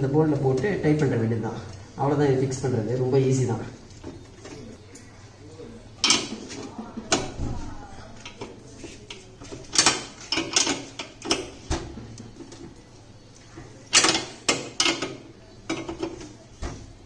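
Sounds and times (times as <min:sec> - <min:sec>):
spanner clinking on metal bolt: 0:09.7 - 0:11.5, 0:13.9 - 0:16.1.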